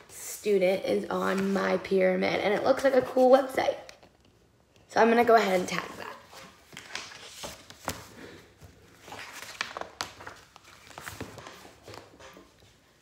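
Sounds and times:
pages being turned: 1.2 - 1.8, 6.3 - 12.8
paper rustling: 1.2 - 1.8, 5.6 - 12.8.

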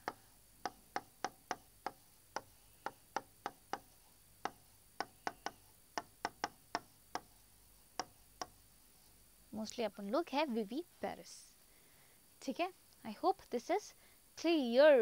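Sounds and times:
pen tip tapping on board: 0.0 - 7.3, 8.0 - 8.6.

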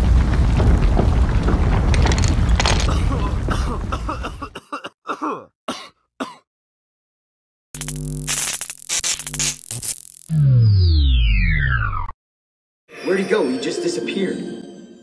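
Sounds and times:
explosion rumble: 0.0 - 4.4
person coughing: 2.8 - 6.5.

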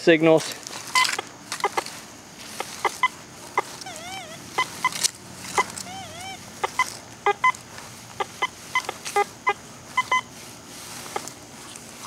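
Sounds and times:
metal detector short beeps: 0.9 - 1.8, 2.6 - 7.6, 8.2 - 10.3.

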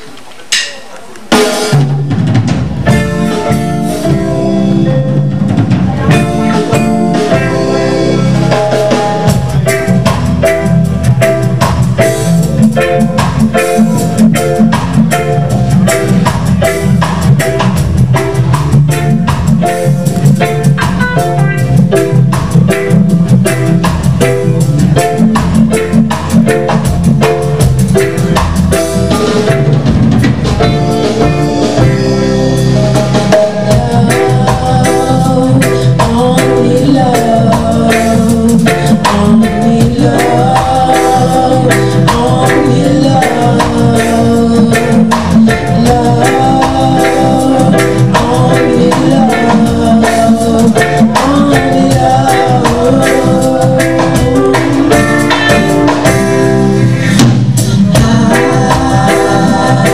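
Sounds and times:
lead singer's voice: 0.0 - 59.9
live band playing: 0.0 - 59.9.

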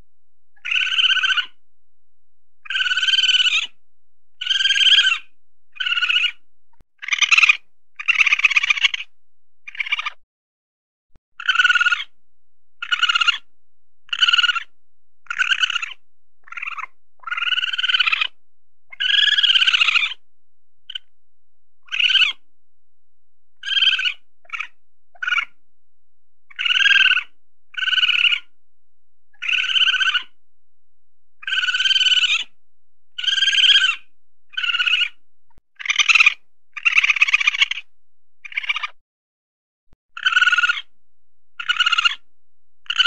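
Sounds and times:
weasel high-pitched calls: 0.6 - 1.6, 2.6 - 3.8, 4.4 - 6.4, 7.0 - 9.1, 9.7 - 10.2, 11.4 - 12.2, 12.8 - 13.5, 14.1 - 20.2, 20.9 - 21.1, 21.8 - 22.4, 23.6 - 25.6, 26.5 - 28.6, 29.4 - 30.4, 31.4 - 32.6, 33.2 - 35.2, 35.8 - 39.0, 40.2 - 40.9, 41.6 - 43.0.

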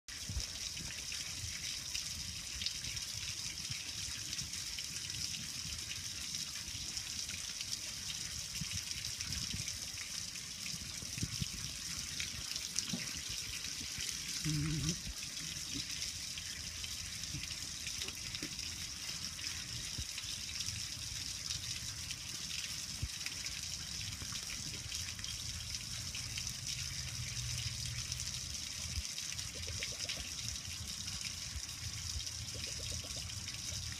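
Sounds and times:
hose water running over metal: 0.1 - 33.9.

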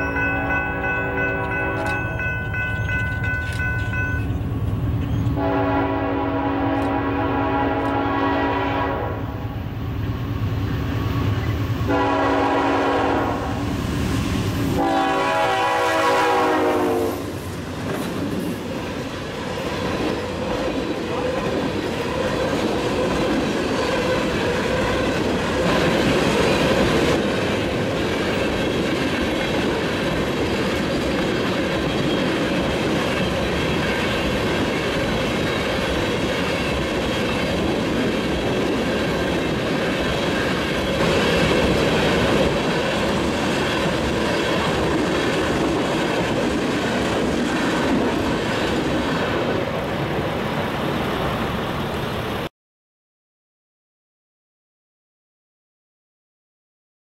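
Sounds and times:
freight train rolling past: 0.0 - 52.5
locomotive horn: 5.4 - 9.6, 11.9 - 13.7, 14.7 - 17.4.

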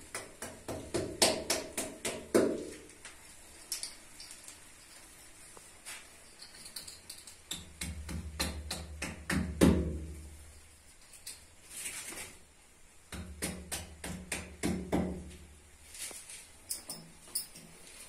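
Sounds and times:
hammer striking into wall: 7.5 - 10.1, 13.1 - 15.3.

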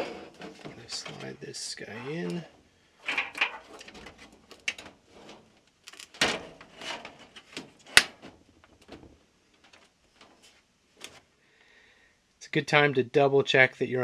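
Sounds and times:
plastic scraping against sheet metal: 0.0 - 9.1.

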